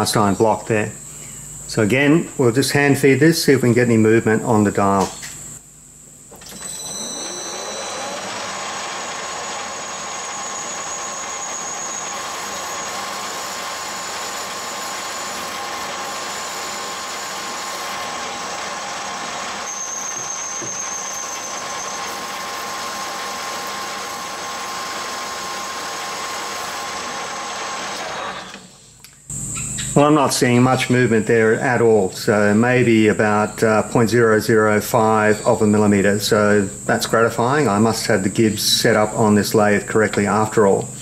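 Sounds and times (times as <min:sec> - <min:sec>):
metal lathe whining: 0:06.4 - 0:28.7
high squeal of parting blade: 0:06.6 - 0:08.3, 0:19.7 - 0:22.4.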